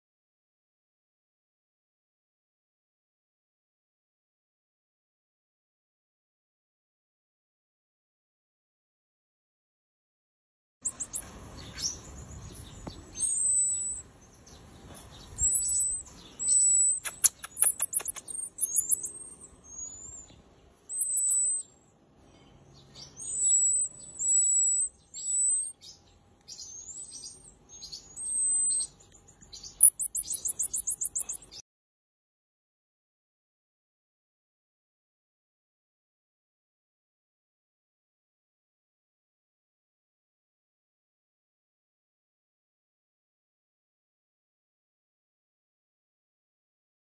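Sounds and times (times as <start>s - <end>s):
high whistling calls: 13.2s - 14.0s, 15.4s - 20.3s, 20.9s - 21.7s, 23.2s - 25.8s, 29.6s - 31.6s.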